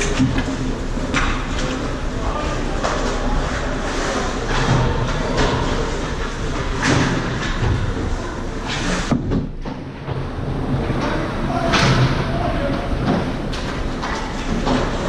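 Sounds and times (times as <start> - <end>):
hockey sticks clattering: 8.6 - 15.0.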